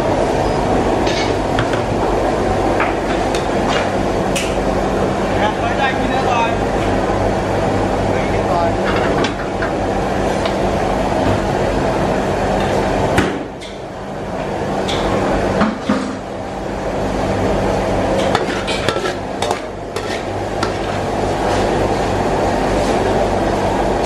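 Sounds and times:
kitchen hum: 0.0 - 24.0
metal ladle scraping a wok: 18.3 - 20.8.

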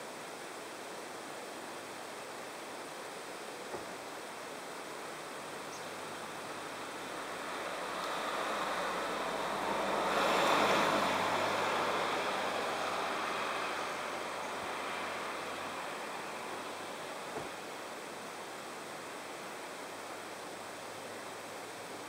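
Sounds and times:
vehicle passing: 6.6 - 17.3.

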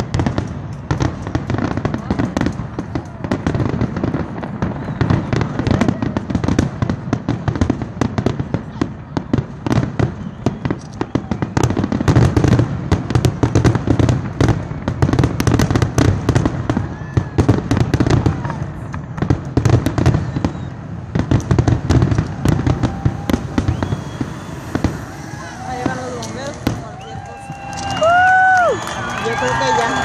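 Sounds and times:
fireworks bangs: 0.0 - 30.0.

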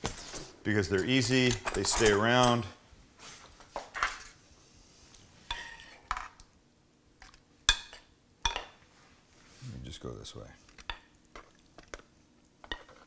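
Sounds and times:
metal spoon scraping a skillet: 5.4 - 6.2.

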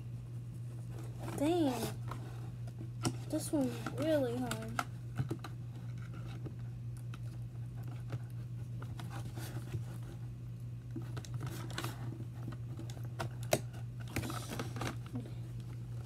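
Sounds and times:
steady low hum: 0.0 - 16.0
packaging clicks and scrapes: 11.0 - 15.3.

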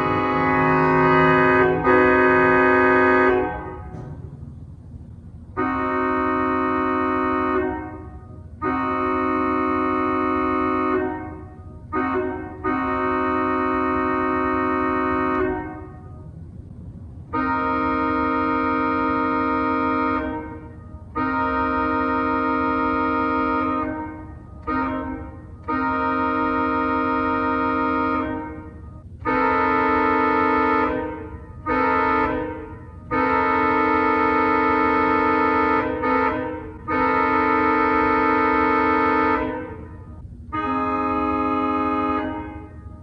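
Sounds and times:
pipe organ chords: 0.0 - 4.2.

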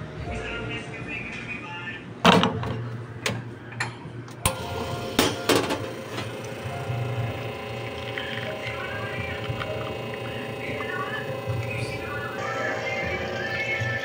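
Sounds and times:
espresso machine pump humming: 4.5 - 14.0.

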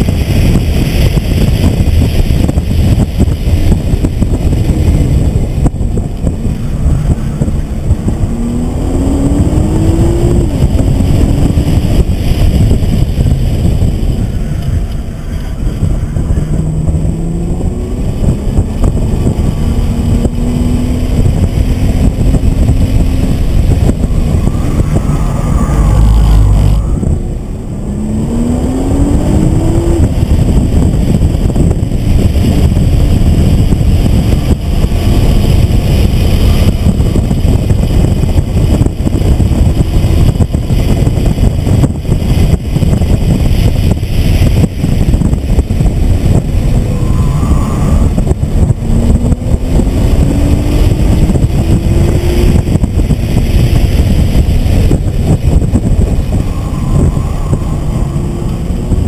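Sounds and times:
road and wind noise: 0.0 - 59.0
car engine revving through gears: 4.0 - 12.7, 16.4 - 39.8, 44.5 - 59.0.

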